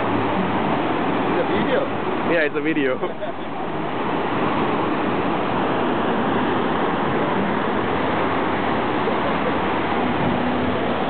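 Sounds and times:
ocean waves breaking on beach: 0:00.0 - 0:11.0.

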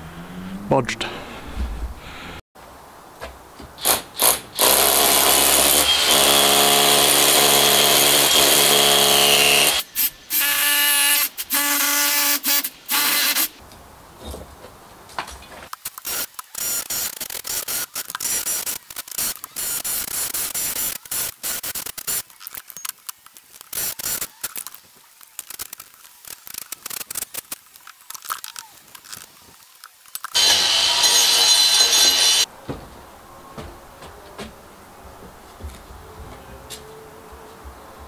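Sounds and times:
hammer drill hammering: 0:03.8 - 0:09.8, 0:30.4 - 0:32.4.

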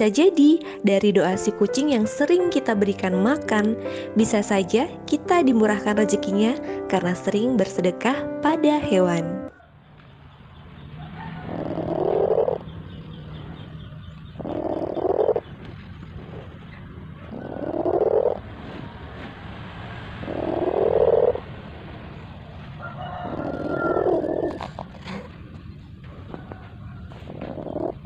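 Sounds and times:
cat purring: 0:11.4 - 0:19.3, 0:20.2 - 0:21.5, 0:23.2 - 0:28.0.

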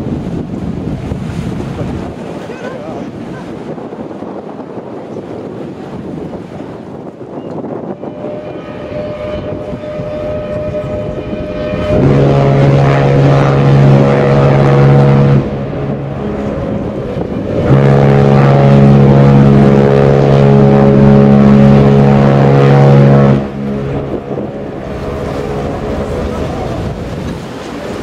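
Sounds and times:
deep ship's horn blasts: 0:00.0 - 0:28.0
wind noise: 0:00.0 - 0:28.0
faint higher horn tone: 0:07.3 - 0:26.6.

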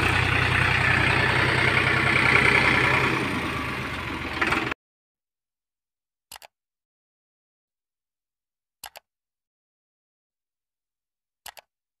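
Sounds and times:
mouse double click: 0:06.3 - 0:06.5, 0:11.5 - 0:11.7.

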